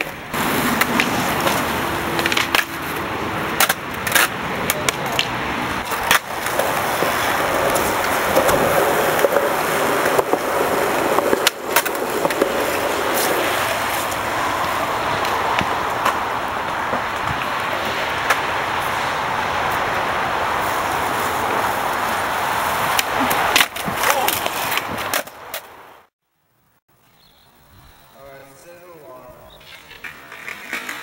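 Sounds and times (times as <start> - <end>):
skateboard clacking on ground: 0.0 - 19.0, 22.7 - 25.7, 29.6 - 31.0
skateboard wheels rolling on concrete: 0.0 - 26.1, 26.9 - 31.0.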